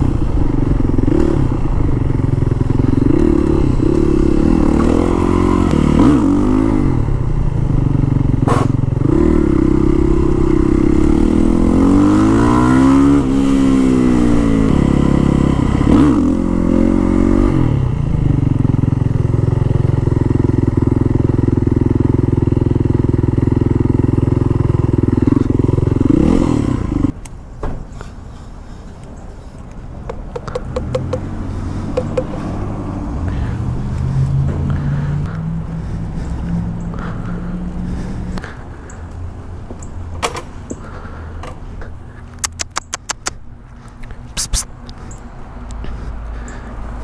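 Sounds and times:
motorcycle engine revving: 0.0s - 27.2s, 30.1s - 39.0s.

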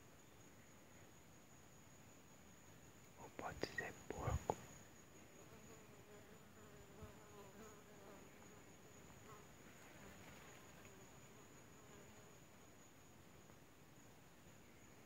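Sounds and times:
flying insect buzzing: 4.3s - 12.9s.

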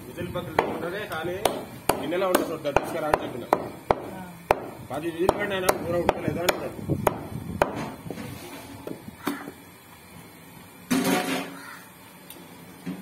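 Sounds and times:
cleaver chopping meat on wood: 0.5s - 8.0s.

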